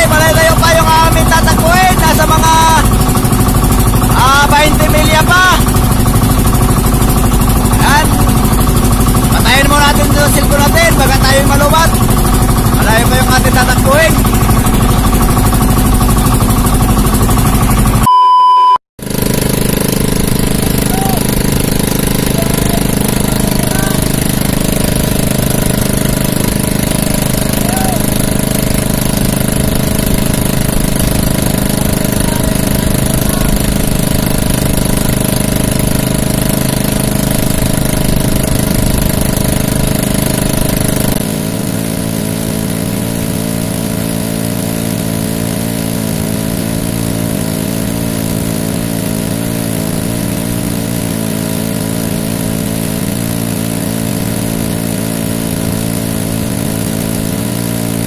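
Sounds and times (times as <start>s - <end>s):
boat engine running: 0.0s - 18.1s, 19.0s - 58.0s.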